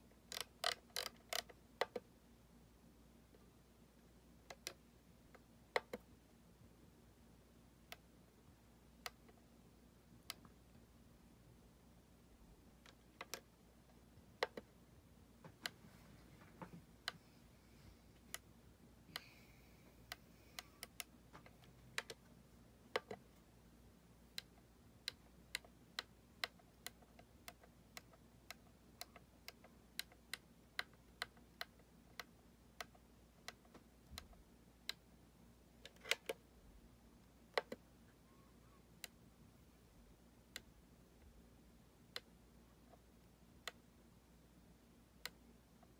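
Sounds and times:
rotary knob clicking: 0:00.3 - 0:02.0.

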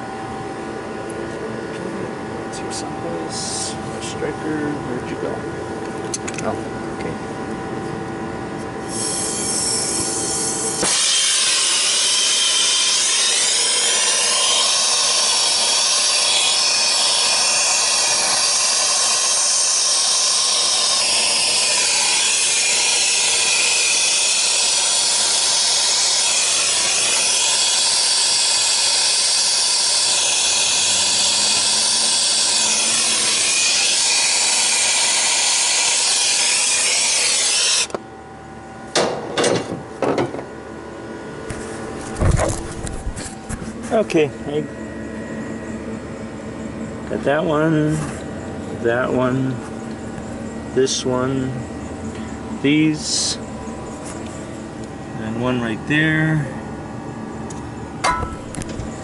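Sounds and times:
torch flame hissing: 0:08.8 - 0:37.9.

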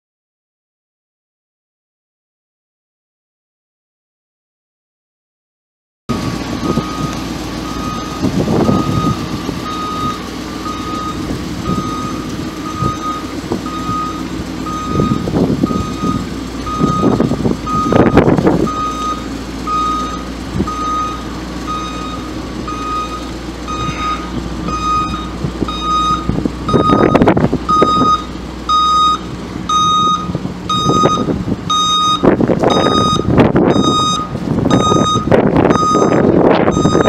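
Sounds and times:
truck engine running low: 0:06.1 - 0:37.0
backup alarm beeping: 0:06.2 - 0:37.0.

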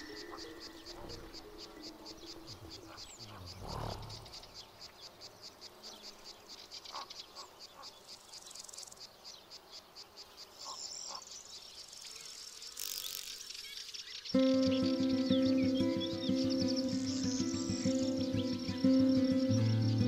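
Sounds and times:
insects chirping: 0:00.0 - 0:20.0.

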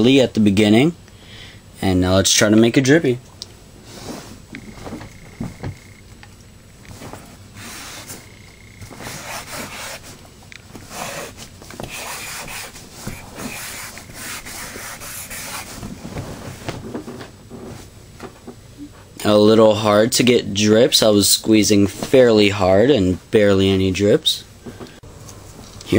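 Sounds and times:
marker rubbing on whiteboard: 0:07.6 - 0:10.2, 0:10.8 - 0:15.9.

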